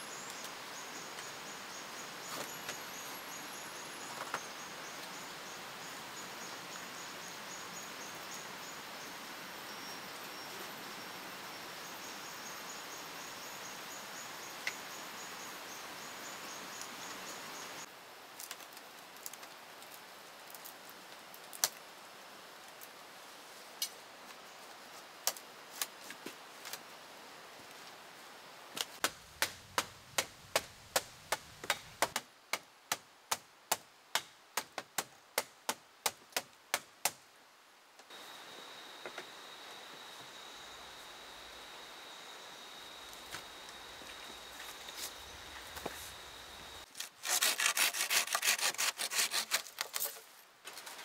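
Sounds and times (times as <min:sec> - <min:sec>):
high insect buzz: 0:38.1 - 0:46.9.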